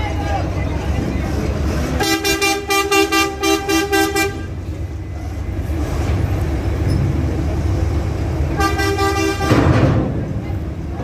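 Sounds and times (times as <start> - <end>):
bus diesel engine low speed: 0.0 - 11.0
pulsing two-tone bus horn: 2.0 - 4.6, 8.5 - 9.8.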